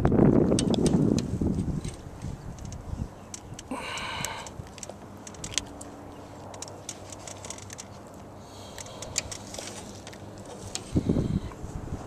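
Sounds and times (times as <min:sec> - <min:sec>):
rustling: 0:04.7 - 0:11.1.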